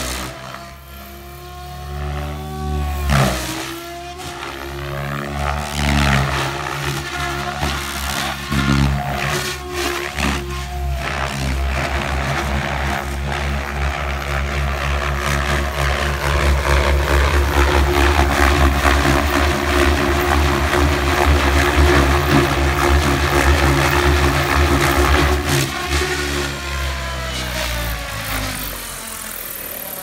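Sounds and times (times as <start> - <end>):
radio-controlled helicopter drone: 0.0 - 30.0.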